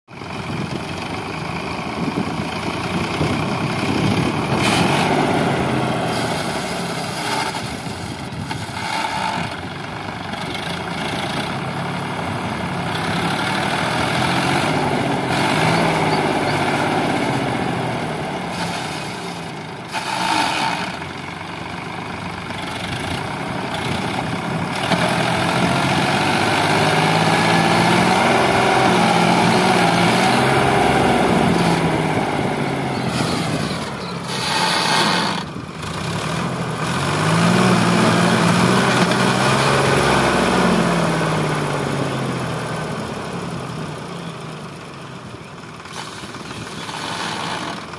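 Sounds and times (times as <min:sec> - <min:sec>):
diesel tractor engine under load: 0:00.1 - 0:47.9.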